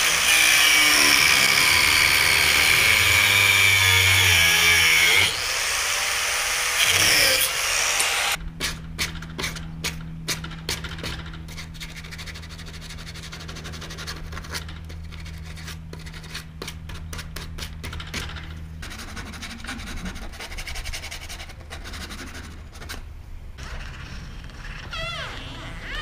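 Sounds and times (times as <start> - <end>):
steady low hum: 8.3 - 25.9.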